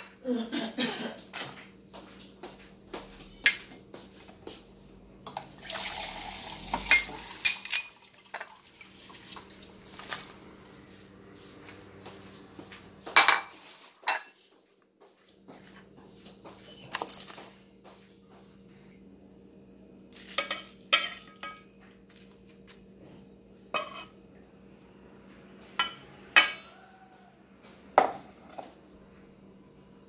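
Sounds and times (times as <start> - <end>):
utensils clinking on metal bowl: 6.7 - 8.6, 20.2 - 21.7
faint steady hum: 14.5 - 30.0.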